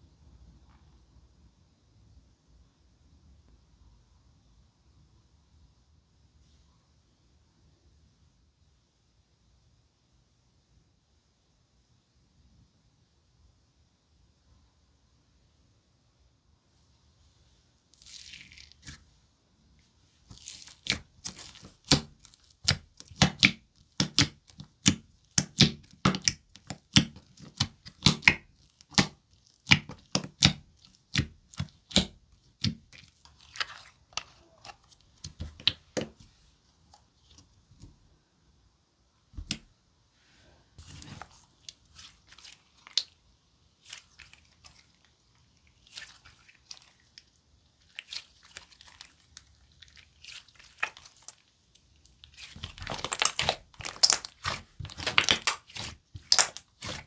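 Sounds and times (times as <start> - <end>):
slime popping and crackling: 18.0 - 19.0, 20.2 - 36.2, 40.8 - 43.2, 43.8 - 57.0.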